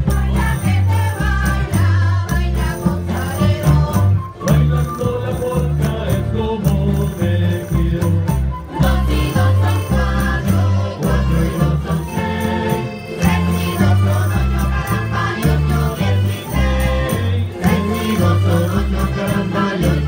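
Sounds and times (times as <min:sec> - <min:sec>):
women singing together: 0:00.0 - 0:06.3, 0:08.7 - 0:20.0
bass line: 0:00.0 - 0:20.0
shaken percussion: 0:00.0 - 0:20.0
string accompaniment: 0:00.0 - 0:20.0.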